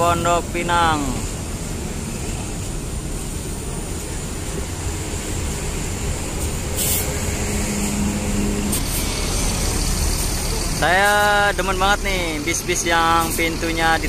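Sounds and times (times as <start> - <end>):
bus diesel engine running: 0.0 - 14.0
air hiss: 5.6 - 11.5.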